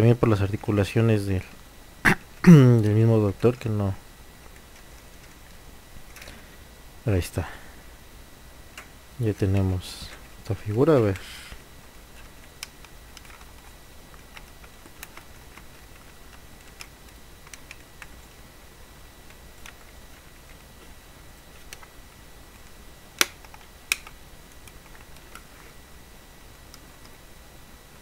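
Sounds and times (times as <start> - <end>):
sharp clicks: 23.2 - 25.4.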